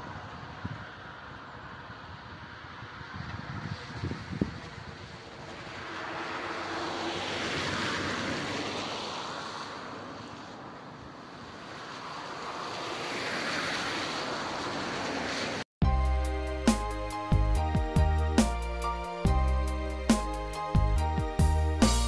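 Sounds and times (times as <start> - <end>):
car tyres hissing on wet road: 0.0 - 15.6.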